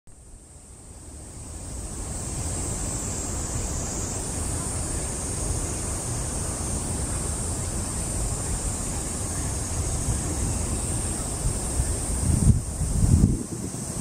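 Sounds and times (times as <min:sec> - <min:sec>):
cicadas chorus: 0:00.2 - 0:14.0
distant city traffic: 0:00.5 - 0:13.1
wind on microphone: 0:01.7 - 0:14.0.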